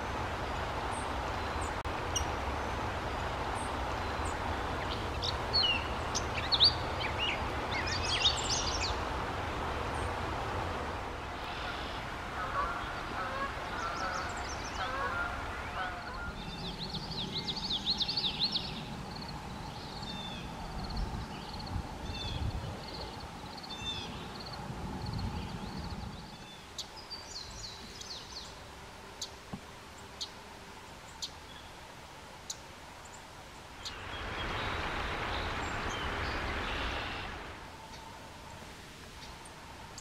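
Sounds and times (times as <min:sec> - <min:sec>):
bird song warbling: 0:00.0 - 0:09.0, 0:11.4 - 0:28.6, 0:33.8 - 0:38.1
steady rushing noise: 0:00.0 - 0:40.0.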